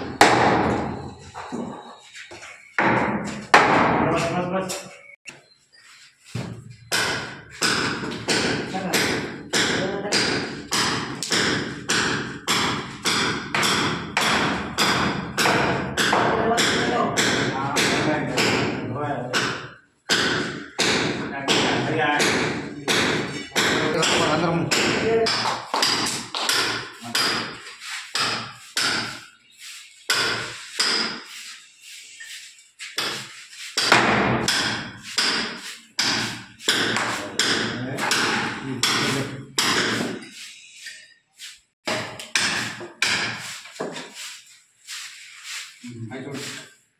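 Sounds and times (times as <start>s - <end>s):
hammering on wooden frame: 0.0s - 1.0s, 2.8s - 4.4s, 6.4s - 29.3s, 30.1s - 31.4s, 32.9s - 40.3s, 41.8s - 44.1s
hammer blows on wood: 32.9s - 40.3s.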